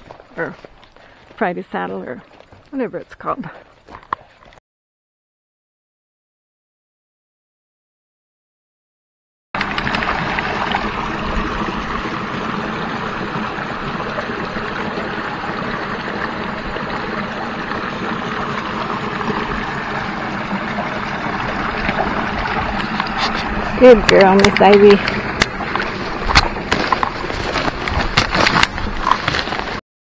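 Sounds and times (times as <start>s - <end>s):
creek running over rocks: 0.0s - 4.6s, 9.6s - 29.8s.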